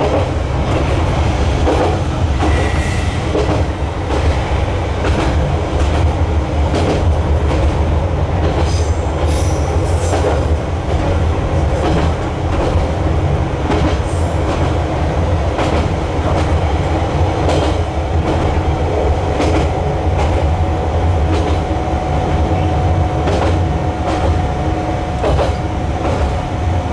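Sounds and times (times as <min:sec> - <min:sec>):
train rumble: 0:00.0 - 0:26.9
wheels clicking over rail joints: 0:25.1 - 0:26.4.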